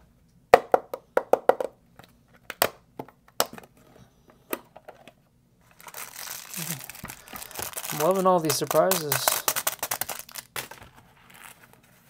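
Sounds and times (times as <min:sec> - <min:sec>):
plastic case handling: 0:04.8 - 0:11.0.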